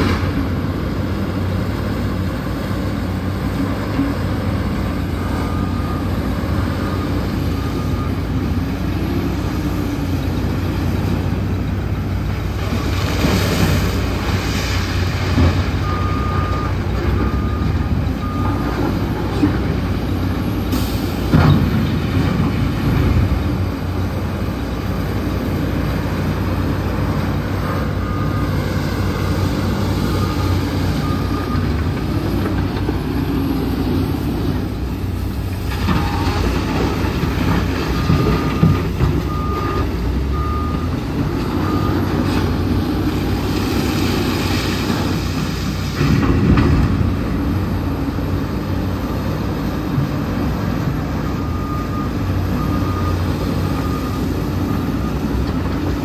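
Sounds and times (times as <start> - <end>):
diesel truck engine running: 0.0 - 56.0
reversing alarm beeping: 4.6 - 9.6, 15.4 - 19.5, 26.6 - 34.9, 35.9 - 43.6, 49.6 - 56.0.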